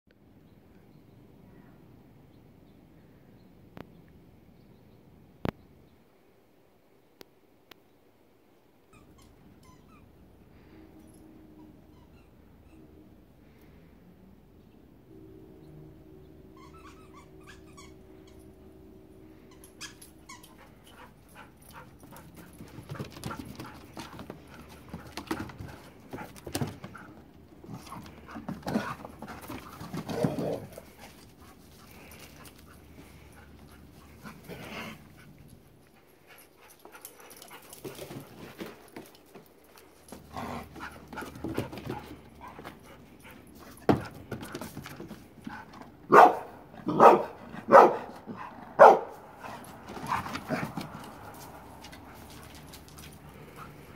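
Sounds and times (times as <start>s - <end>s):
dogs panting: 20.4s - 46.2s, 47.3s - 53.9s.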